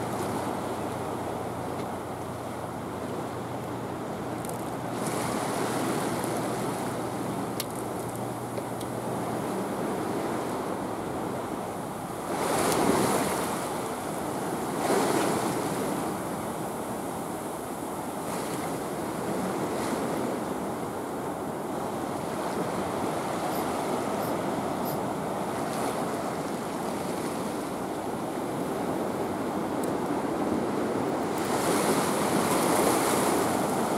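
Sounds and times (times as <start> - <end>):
seawater washing against breakwater: 21.8 - 33.9.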